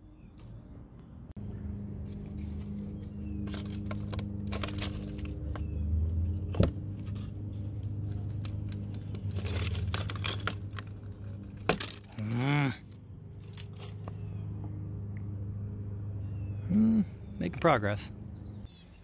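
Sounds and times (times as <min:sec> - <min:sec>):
low hum: 0:00.0 - 0:18.7
vinyl wrap crinkling and tearing: 0:03.5 - 0:05.4, 0:07.9 - 0:12.4.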